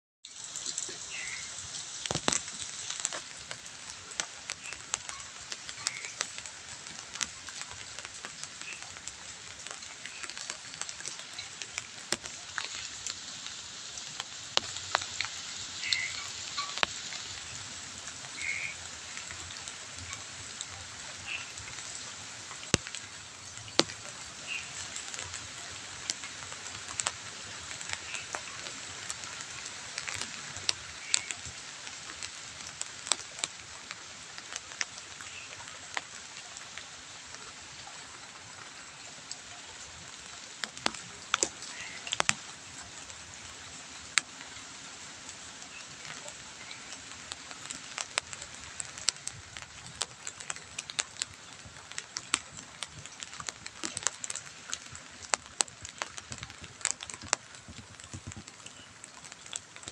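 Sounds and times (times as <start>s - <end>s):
rain hissing: 0.2s - 59.9s
sharp drips on ground and leaves: 0.2s - 59.9s.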